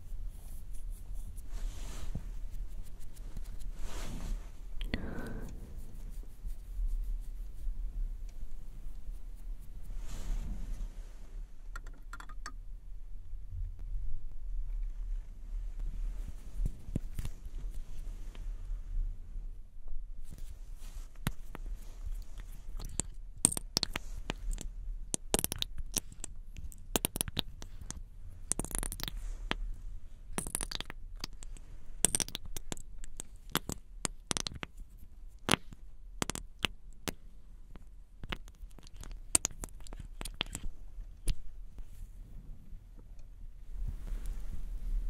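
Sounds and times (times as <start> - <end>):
plastic tube cap clicking and tapping: 11.8 - 12.6, 35.4 - 37.2.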